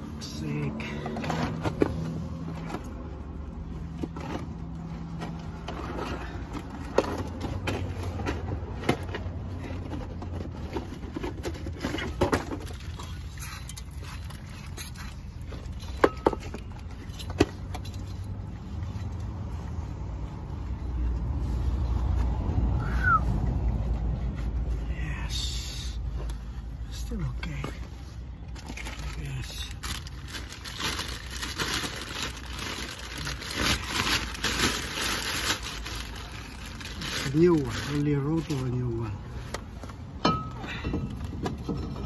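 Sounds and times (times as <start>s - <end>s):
rustling and light scraping: 23.3s - 40.2s.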